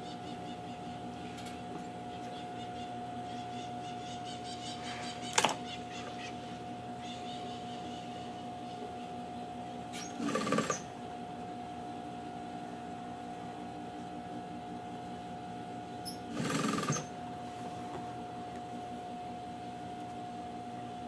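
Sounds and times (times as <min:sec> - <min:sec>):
sewing machine motor whine: 0:09.9 - 0:11.0, 0:16.1 - 0:17.3.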